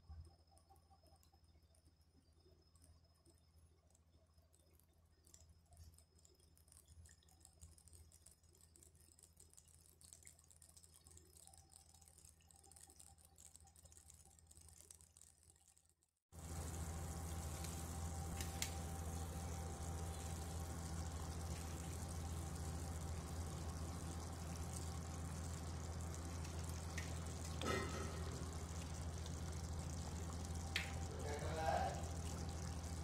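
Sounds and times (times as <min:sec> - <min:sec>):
small crackles: 0:00.1 - 0:33.0
curry bubbling in a pan: 0:03.7 - 0:33.0
low hum: 0:16.4 - 0:33.0.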